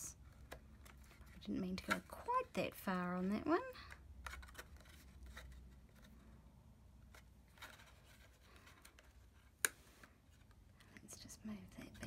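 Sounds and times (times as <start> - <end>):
cardstock rustling: 0.2 - 6.3, 7.0 - 10.6.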